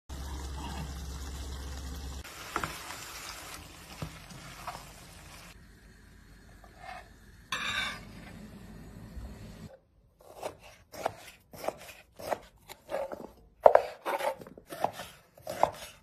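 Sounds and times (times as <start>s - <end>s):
liver sizzling in a pan: 0.1s - 5.9s.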